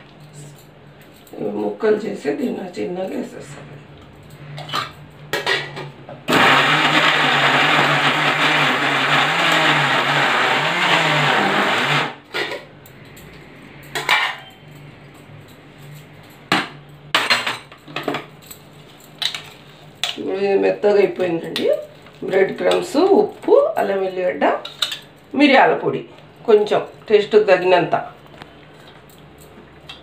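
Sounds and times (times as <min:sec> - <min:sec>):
electric mixer grinder running: 0:06.3 - 0:12.2.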